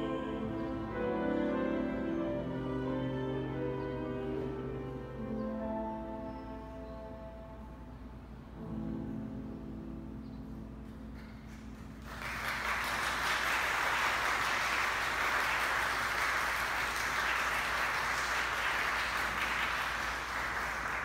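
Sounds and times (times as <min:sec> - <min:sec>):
tenor piano and cello music: 0:00.0 - 0:11.6
audience applause: 0:11.7 - 0:21.0.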